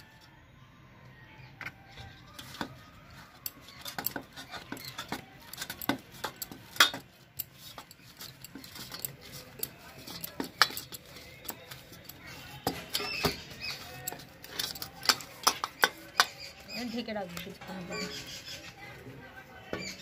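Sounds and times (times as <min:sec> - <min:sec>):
bangles clinking on steel bowl: 0:02.4 - 0:18.3.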